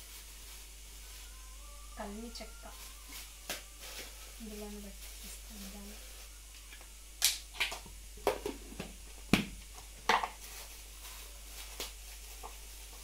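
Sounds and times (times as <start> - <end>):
plastic packets clicking and crinkling: 9.8 - 13.0.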